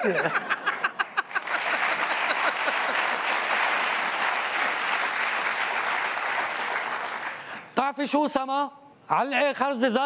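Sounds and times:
audience applauding: 0.9s - 7.6s.

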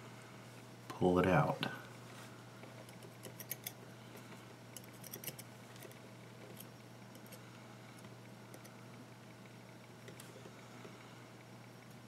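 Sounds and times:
steady low hum: 0.0s - 12.0s
metal tool clicking and scraping: 3.2s - 3.8s, 4.8s - 5.5s.

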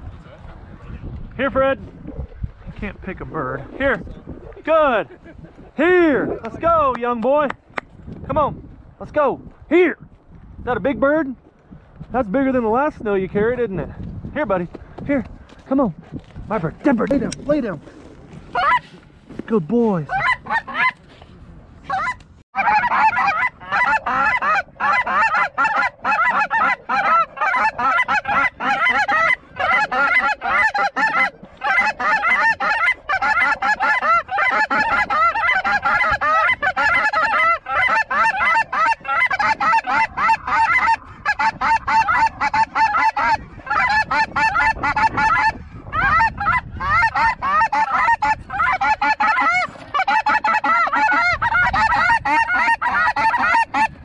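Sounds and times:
geese honking: 18.5s - 19.0s, 20.0s - 21.0s, 21.8s - 54.0s.

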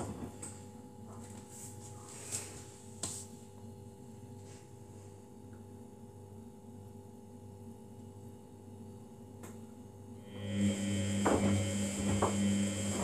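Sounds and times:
washing machine humming: 9.0s - 13.0s.

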